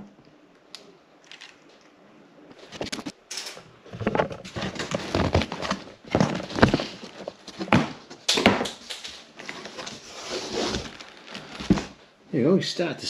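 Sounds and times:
cardboard flaps scraping and knocking: 4.0 - 8.7, 9.4 - 12.0.

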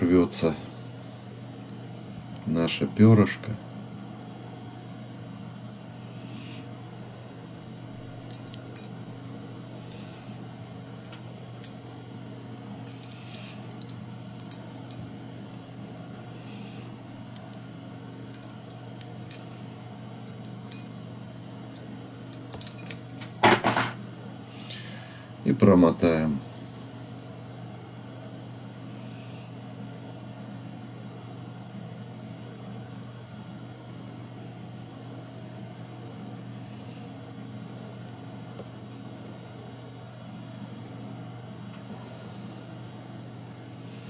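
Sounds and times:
low electrical hum: 0.0 - 44.0
metallic clicks of small tools: 12.9 - 14.6.

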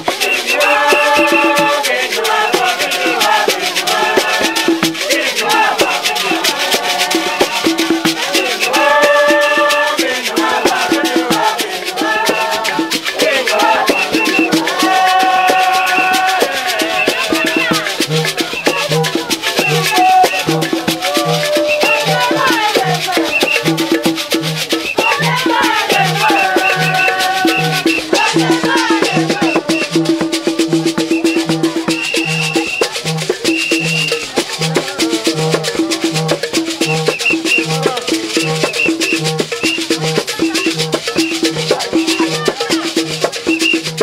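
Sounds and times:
shaken rattles: 0.0 - 44.0
voices singing: 0.0 - 44.0.

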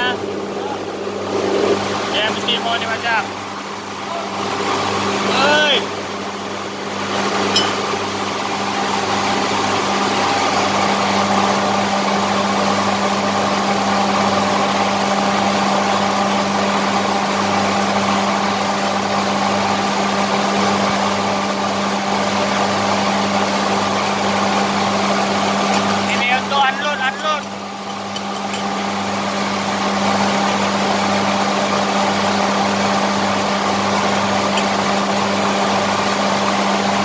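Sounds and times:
motor humming: 23.2 - 37.0.

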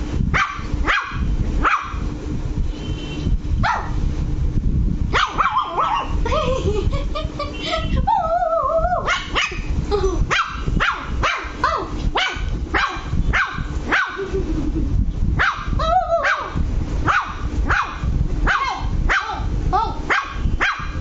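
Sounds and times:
puppy barking: 0.3 - 2.0, 3.6 - 4.0, 5.1 - 6.2, 9.0 - 9.7, 10.3 - 14.3, 15.4 - 19.5, 20.1 - 21.0
puppy wavering cry: 5.2 - 6.2, 8.0 - 9.6, 15.6 - 16.6.

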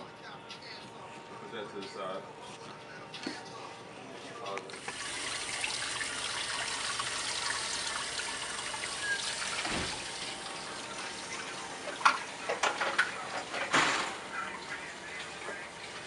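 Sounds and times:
water running from faucet: 4.8 - 13.3.

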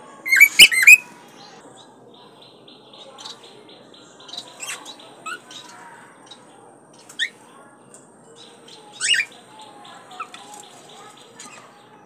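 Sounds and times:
cockatiel whistles and chirps: 0.3 - 1.0.

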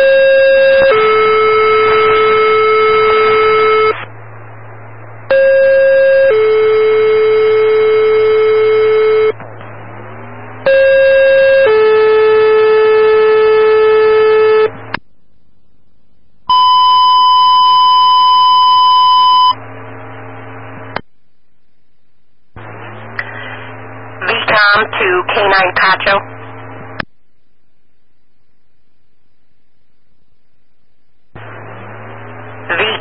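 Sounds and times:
dispatch alert tones: 0.0 - 4.1, 5.3 - 14.8
radio hiss: 22.6 - 27.0, 31.4 - 33.0.

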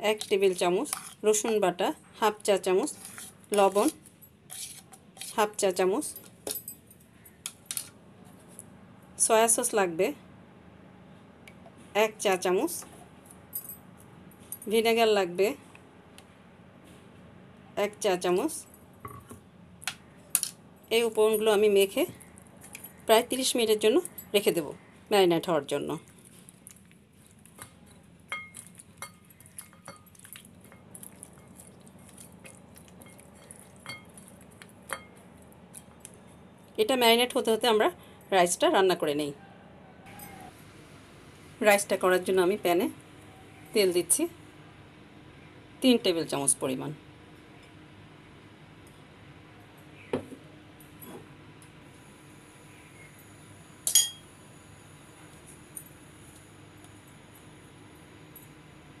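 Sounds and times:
hand mixing food in bowl: 26.0 - 36.3
light clinks against ceramic bowl: 53.9 - 54.2.

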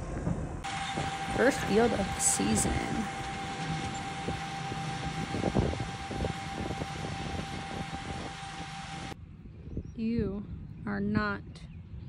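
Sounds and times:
tractor engine drone: 0.0 - 9.4
constant high whine: 0.0 - 12.0
low rumbling: 0.0 - 12.0.

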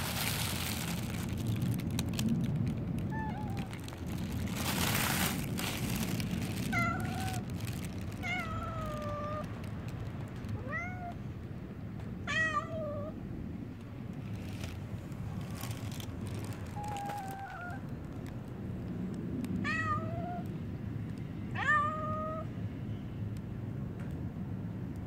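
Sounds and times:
cat meowing: 3.1 - 3.8, 6.7 - 7.5, 8.2 - 9.5, 10.6 - 11.2, 12.3 - 13.2, 16.7 - 17.9, 19.6 - 20.5, 21.6 - 22.5.

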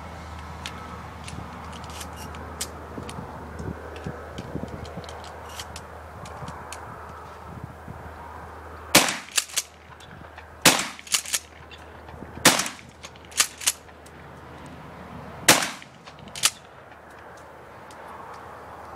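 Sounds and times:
shotgun pump racking clacks: 0.6 - 3.2, 9.0 - 14.1, 15.5 - 17.2
shotgun shots: 9.0 - 9.7, 10.6 - 11.4, 12.4 - 13.8, 15.5 - 16.6.

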